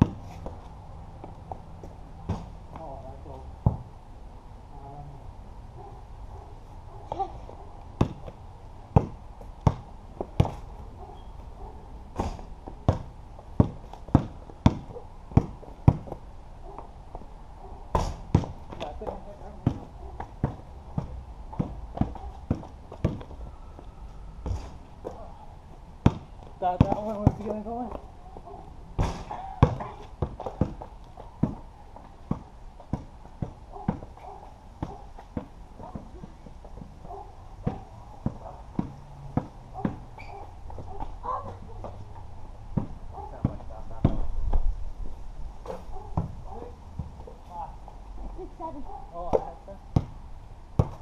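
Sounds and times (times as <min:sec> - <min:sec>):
basketball bouncing on concrete: 0:00.0 - 0:00.6, 0:03.6 - 0:03.9, 0:08.0 - 0:10.6, 0:12.2 - 0:16.2, 0:17.9 - 0:23.4, 0:26.0 - 0:28.1, 0:29.0 - 0:44.6, 0:46.1 - 0:47.3, 0:49.2 - 0:50.2, 0:50.8 - 0:51.0
sharp thump: 0:12.2 - 0:12.5, 0:29.0 - 0:29.8.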